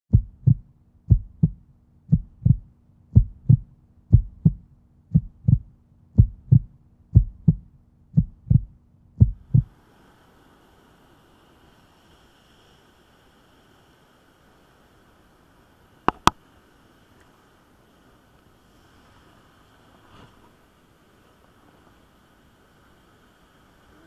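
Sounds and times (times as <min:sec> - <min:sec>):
heartbeat thumps: 0:00.1 - 0:09.7
faint hiss: 0:00.1 - 0:24.0.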